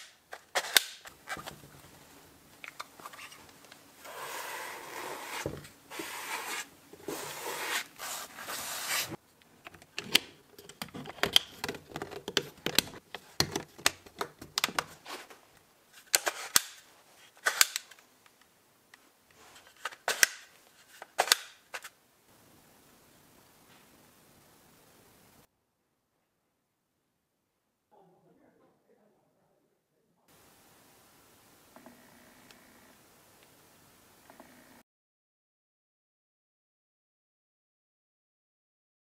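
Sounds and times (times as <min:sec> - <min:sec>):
sponge scrubbing plastic housing: 0:04.0 - 0:09.2.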